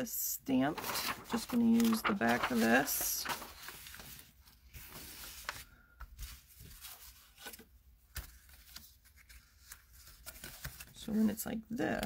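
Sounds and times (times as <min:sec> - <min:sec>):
paper rustling and sliding: 0:00.6 - 0:10.9.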